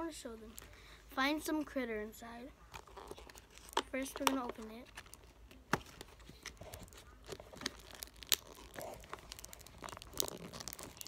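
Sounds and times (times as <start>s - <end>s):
plastic packaging crinkling: 2.7s - 11.0s.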